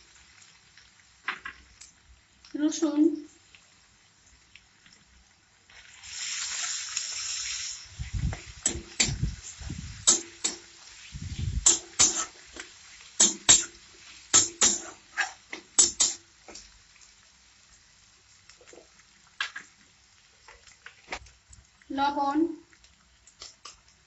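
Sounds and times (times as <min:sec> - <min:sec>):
garlic paste sizzling in oil: 0:00.0 - 0:24.0
low thumps: 0:08.0 - 0:10.1
metal spatula scraping pan: 0:11.6 - 0:12.4, 0:14.4 - 0:16.2.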